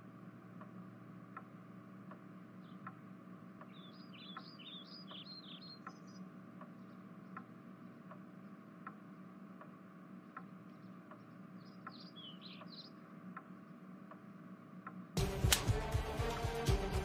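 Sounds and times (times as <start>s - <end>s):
evenly spaced ticking: 0.0s - 16.4s
low steady hum: 0.0s - 17.0s
bird chirps: 2.6s - 3.0s, 3.6s - 8.0s, 10.6s - 13.1s.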